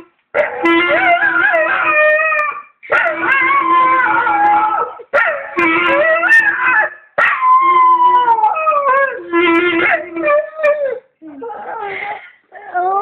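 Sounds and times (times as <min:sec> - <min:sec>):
dog howling: 0:00.4 - 0:11.8.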